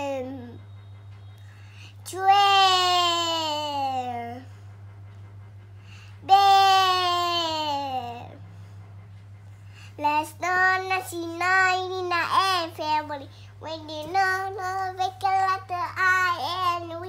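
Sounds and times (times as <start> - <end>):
child singing: 2.1 - 4.4, 6.3 - 8.3, 10.0 - 17.0.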